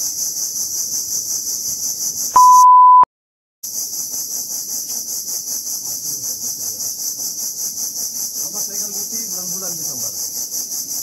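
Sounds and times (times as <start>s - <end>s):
pulsing insect chorus: 0.0s - 2.4s, 3.7s - 11.0s
electronic beep: 2.4s - 3.1s.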